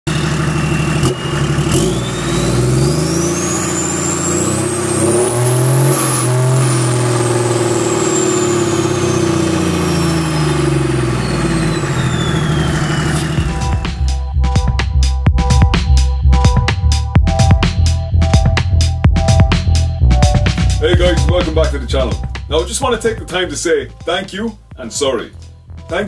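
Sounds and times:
diesel engine revving: 0.1s - 24.8s
turbo whistle: 1.8s - 14.2s.

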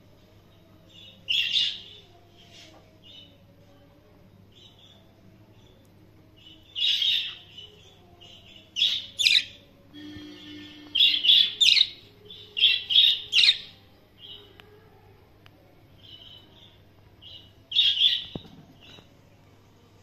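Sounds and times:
soft bird chatter: 0.1s - 19.4s
budgerigars chirping: 11.0s - 12.0s.

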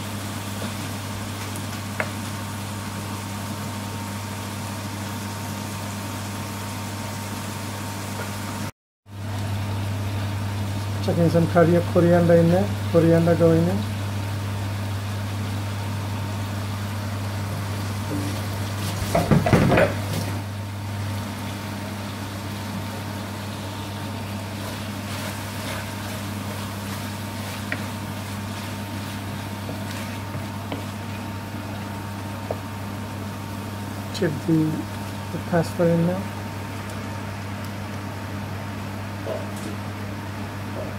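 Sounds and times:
wooden spatula stirring in wok: 24.2s - 33.9s.

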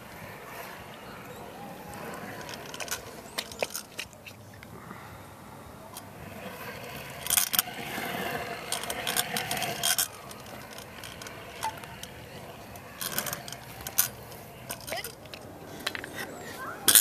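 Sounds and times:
scooter wheels rolling on concrete: 0.0s - 17.0s
scooter deck clacking and rattling: 1.9s - 4.3s, 7.0s - 17.0s.

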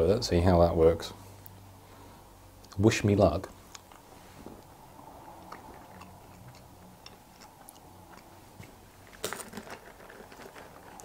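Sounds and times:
quiet chewing: 3.6s - 11.0s
plastic pouch crinkle: 9.0s - 11.0s.

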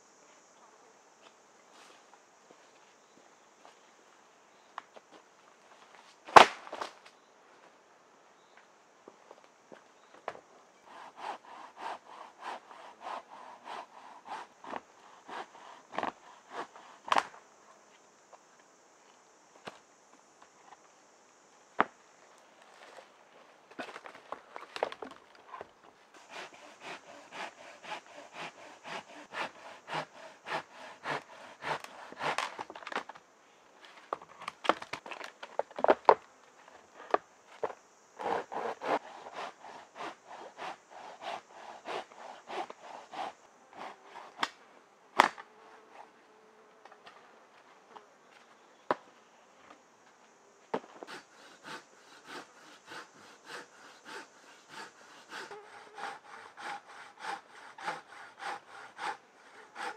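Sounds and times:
high insect buzz: 0.0s - 59.9s
hand saw cutting wood: 10.9s - 17.3s, 26.2s - 32.7s, 38.2s - 44.5s, 51.0s - 59.9s.

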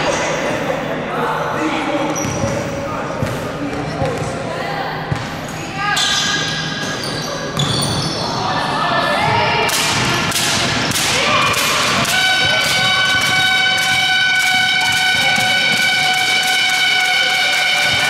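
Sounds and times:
sneakers squeaking on court: 2.1s - 4.4s, 5.1s - 8.4s
ball bouncing: 9.7s - 18.0s
game horn steady tone: 12.0s - 18.0s.

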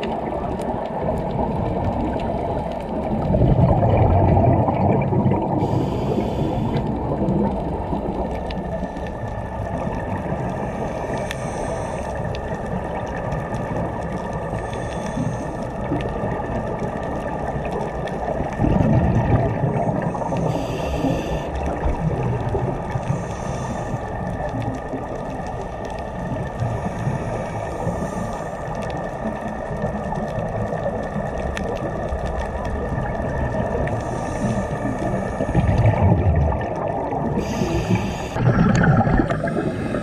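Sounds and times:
bubbling exhaust: 0.0s - 14.0s, 18.4s - 24.0s, 32.7s - 40.0s
underwater rumble: 0.0s - 40.0s
diver breathing through regulator: 5.5s - 7.0s, 10.4s - 12.4s, 14.4s - 15.8s, 19.7s - 21.7s, 23.0s - 24.3s, 26.6s - 28.8s, 33.9s - 36.2s, 37.3s - 40.0s.

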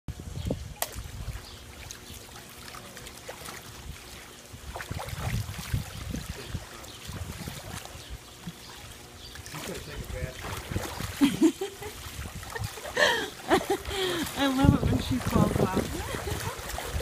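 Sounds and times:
pool water splashing: 0.6s - 17.0s.

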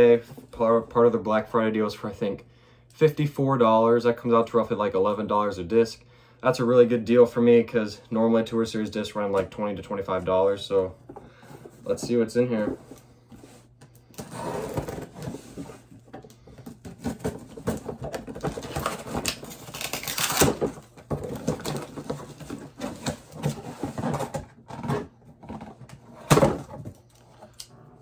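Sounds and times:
cardboard and paper bag rustling: 11.6s - 25.9s
scissors snipping packing tape: 18.8s - 20.7s.

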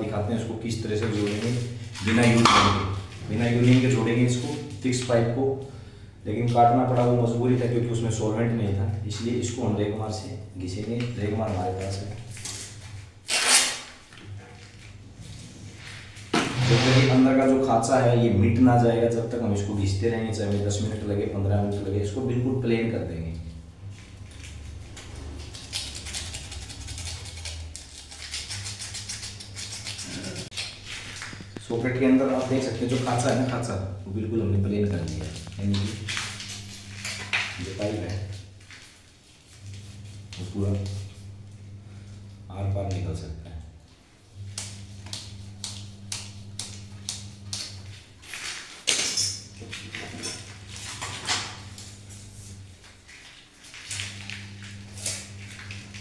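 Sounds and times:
steady low hum: 0.0s - 56.0s
sandpaper scratching inside pipe: 25.1s - 31.4s.

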